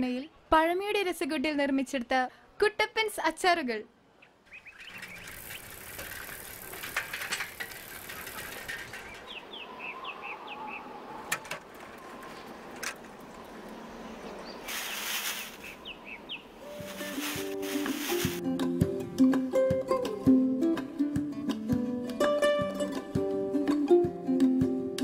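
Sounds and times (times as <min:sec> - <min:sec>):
birds chirping: 0:04.2 - 0:06.9, 0:07.6 - 0:11.2, 0:12.0 - 0:18.4
rustling of plastic bags: 0:14.7 - 0:15.8, 0:16.7 - 0:18.4.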